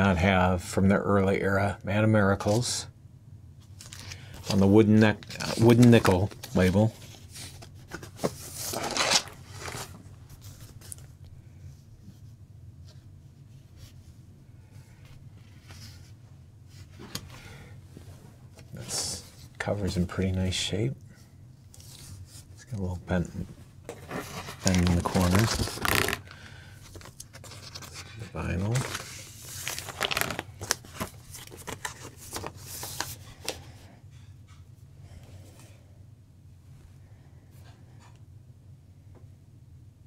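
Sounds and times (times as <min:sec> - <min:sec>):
cardboard rustling: 0:03.8 - 0:11.1, 0:23.2 - 0:33.6.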